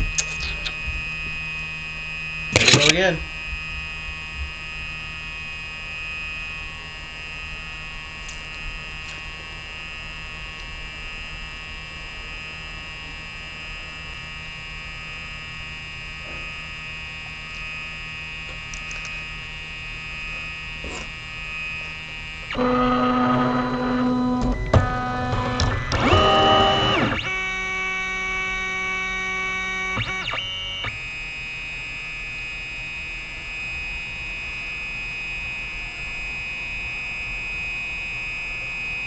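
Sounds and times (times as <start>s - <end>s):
printer high whine: 19.2s - 39.0s
stepper motors buzzing: 20.6s - 31.2s.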